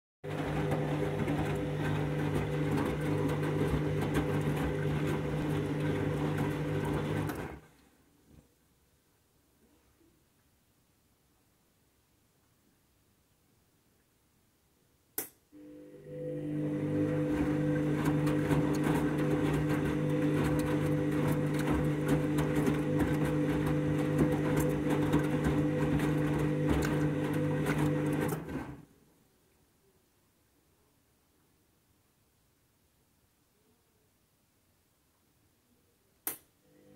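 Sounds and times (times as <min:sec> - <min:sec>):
washing machine motor running: 0:00.2 - 0:07.6, 0:15.6 - 0:28.7.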